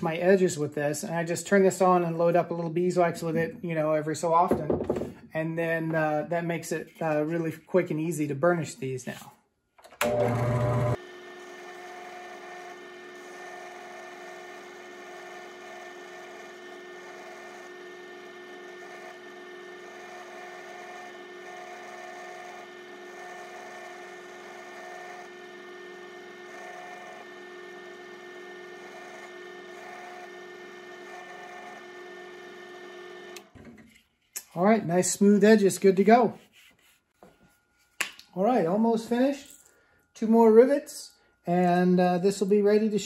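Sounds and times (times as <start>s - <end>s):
drill press motor humming: 9.8s - 33.8s.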